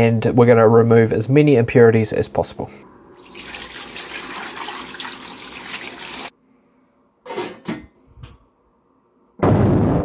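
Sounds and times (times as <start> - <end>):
water splashing into tank: 3.2 - 6.3.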